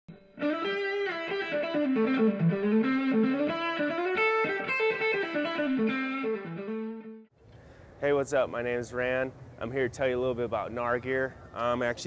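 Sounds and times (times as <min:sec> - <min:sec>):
electric guitar melody: 0:00.1 - 0:07.3.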